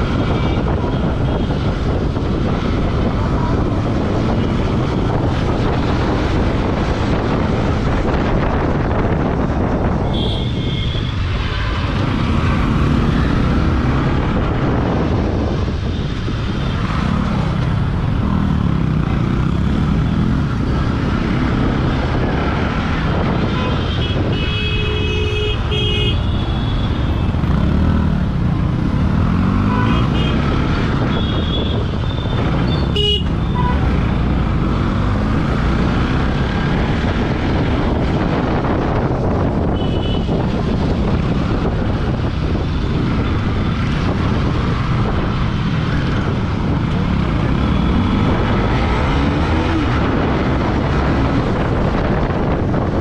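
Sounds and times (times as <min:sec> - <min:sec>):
wind on microphone: 0:00.0 - 0:53.0
traffic horns honking: 0:00.1 - 0:02.0, 0:09.9 - 0:11.9, 0:23.2 - 0:27.7, 0:29.5 - 0:34.2, 0:39.6 - 0:40.8
motorcycle engine revving: 0:27.1 - 0:53.0.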